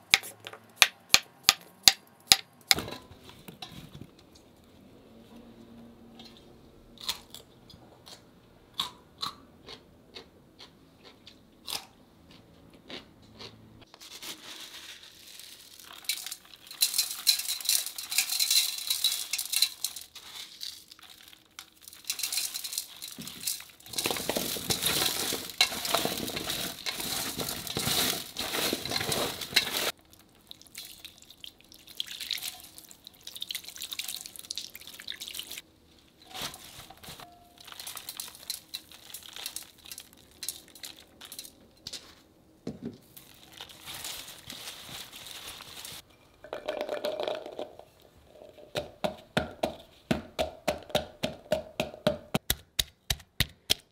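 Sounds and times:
radish chunks clicking in steel bowl: 15.9 - 20.1, 21.0 - 30.0, 37.6 - 41.6.

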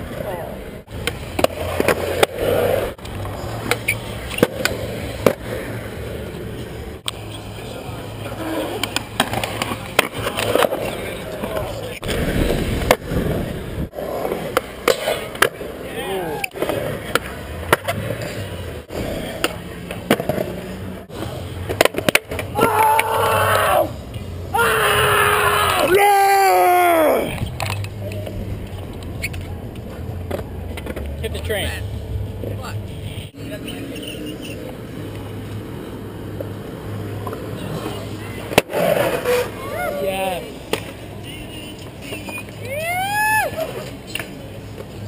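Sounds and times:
skateboard wheels rolling on concrete: 0.0 - 45.0
skateboard clacks: 8.4 - 13.2, 14.1 - 18.6, 21.6 - 23.6.

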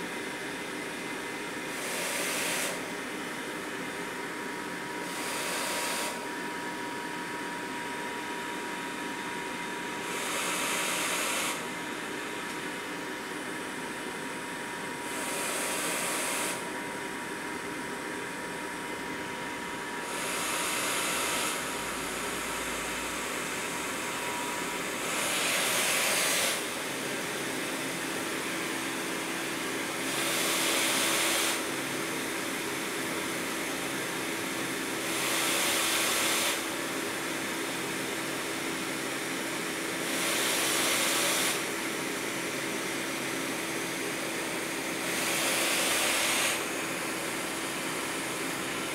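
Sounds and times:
ventilator blower hiss: 0.0 - 48.9
ventilator air rush: 19.4 - 28.3.

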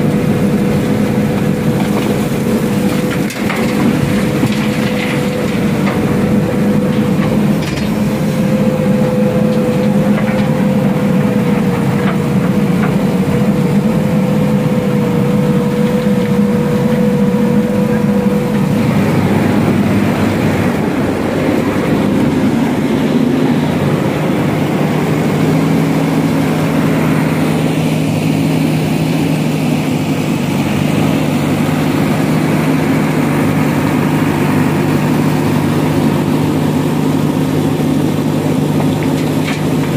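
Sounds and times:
diesel engine running: 0.0 - 39.9
high whine: 5.8 - 36.3.

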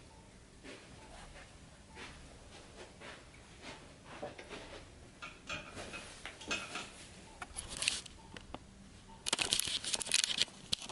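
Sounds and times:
camera handling rustles and clicks: 7.5 - 8.1, 9.2 - 10.9.

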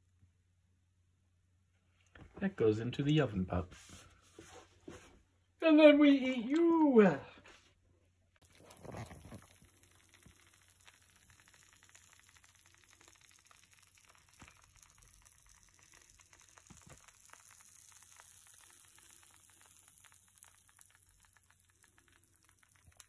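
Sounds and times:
food sizzling on a plate: 8.4 - 23.0.

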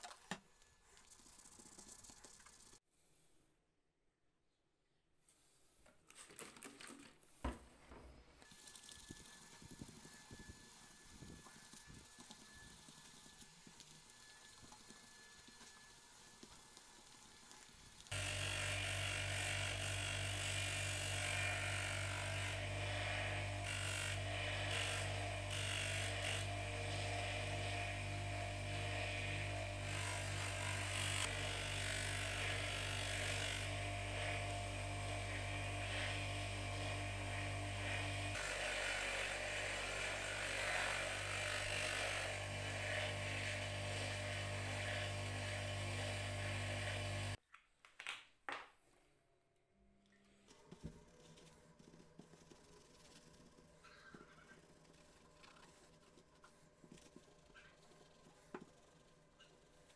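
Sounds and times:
bench grinder motor hum: 18.1 - 47.4.

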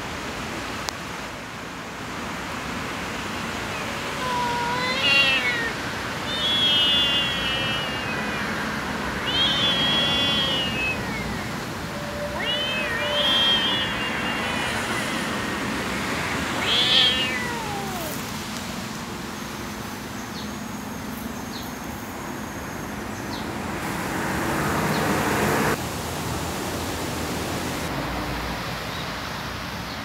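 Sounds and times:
kitten meowing: 3.7 - 18.3.

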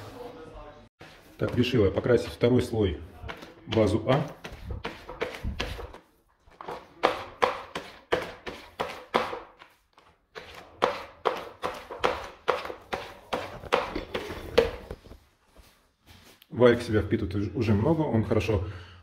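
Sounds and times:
paint roller rolling on tray: 1.0 - 15.2.

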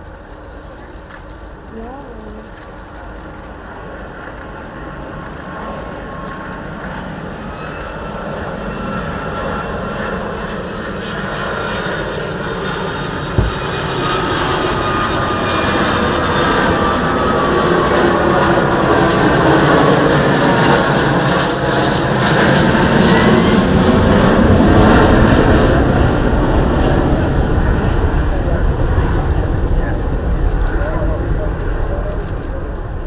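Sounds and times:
engine whine: 0.0 - 33.0
jet engine rumble: 0.0 - 33.0
low thump: 13.4 - 13.9.

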